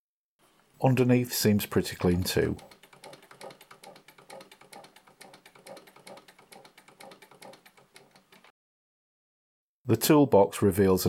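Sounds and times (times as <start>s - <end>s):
sewing machine clicking: 1.9s - 8.5s.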